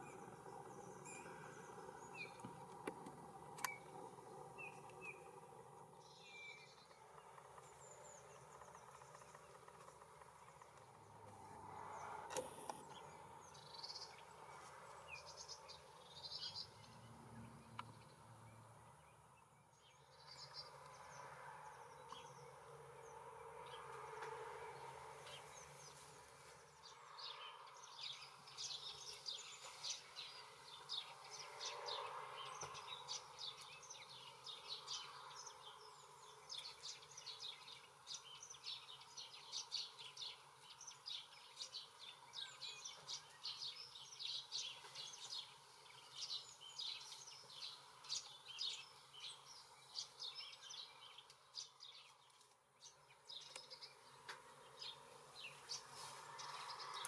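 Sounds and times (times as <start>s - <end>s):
faint songbirds chirping: 0.0s - 57.0s.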